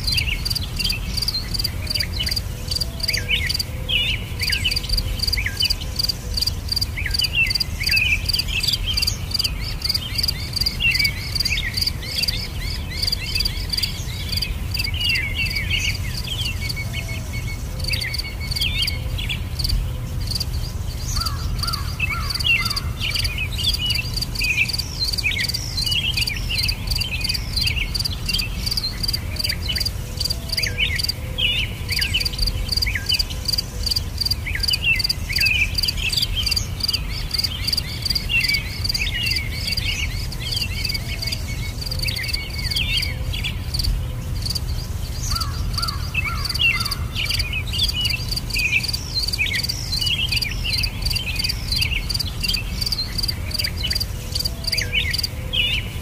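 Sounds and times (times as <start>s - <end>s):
crickets chirping: 0.0s - 55.4s
small birds calling: 0.0s - 56.0s.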